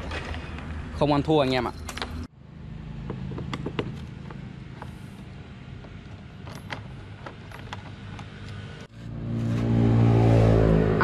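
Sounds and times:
screwdriver clicks and creaks: 3.4s - 9.0s.

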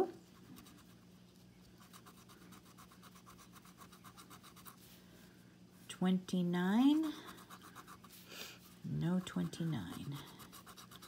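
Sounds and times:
scratching lottery ticket: 1.7s - 4.8s, 6.9s - 8.2s, 9.0s - 11.0s.

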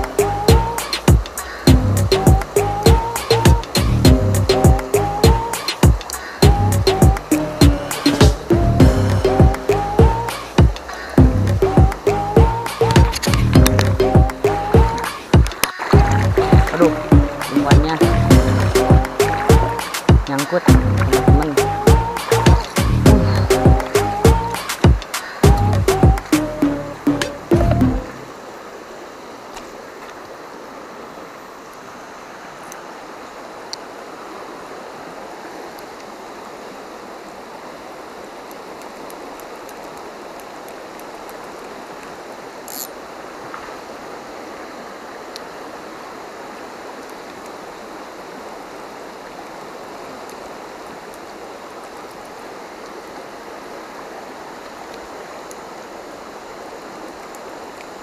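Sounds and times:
river flowing over rocks: 0.0s - 58.0s
brief hiss: 24.6s - 25.4s.

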